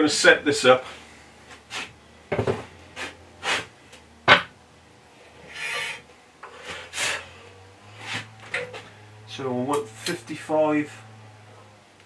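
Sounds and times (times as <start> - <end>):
metal scraping slide: 5.3 - 7.3.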